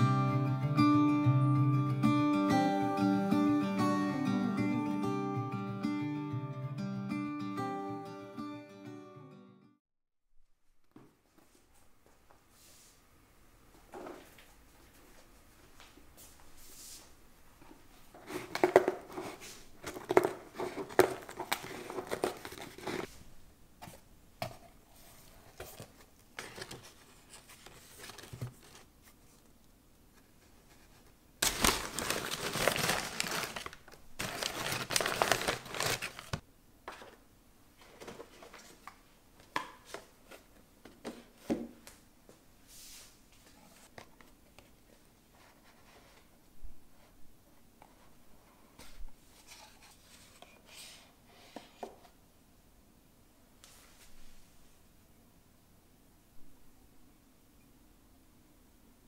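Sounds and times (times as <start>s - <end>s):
packing paper crinkling: 18.3s - 23.1s, 31.4s - 36.4s.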